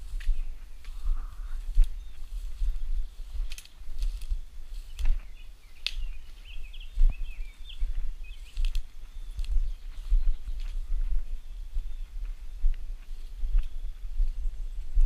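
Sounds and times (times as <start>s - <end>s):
bird chirping: 0.0s - 3.5s, 4.7s - 12.7s
footsteps through grass and brush: 0.0s - 15.0s
wind rumbling on microphone: 0.0s - 15.0s.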